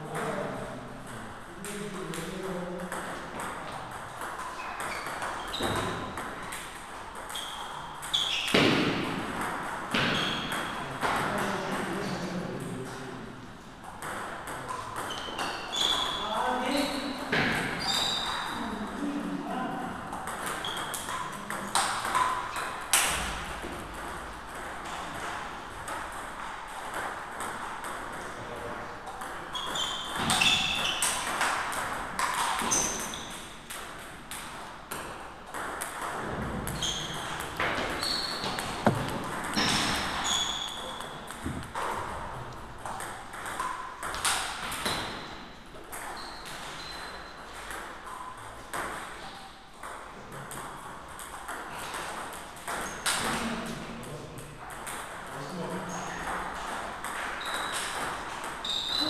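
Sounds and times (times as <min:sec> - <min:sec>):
table tennis balls clicking: 0:01.1 - 0:11.8, 0:20.1 - 0:28.3, 0:29.0 - 0:42.2, 0:42.8 - 0:53.4.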